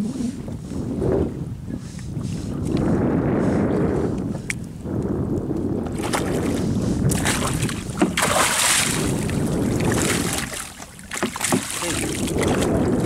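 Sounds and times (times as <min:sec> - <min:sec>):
wind rumble on microphone: 0:00.0 - 0:13.0
fish thrashing and splashing: 0:05.9 - 0:13.0.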